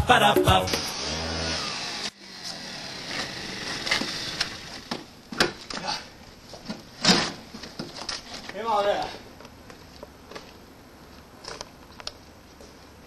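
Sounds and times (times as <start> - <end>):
scooter knocks and clunks: 4.9 - 5.9.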